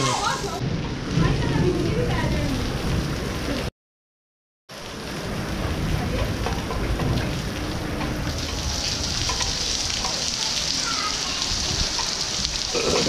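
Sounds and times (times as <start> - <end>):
heavy rain on concrete: 0.0 - 3.7, 4.7 - 13.0.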